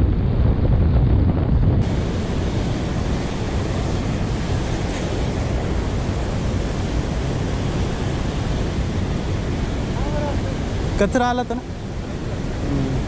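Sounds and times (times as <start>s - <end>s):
wind on microphone: 0.0s - 13.0s
white water rushing: 1.8s - 13.0s.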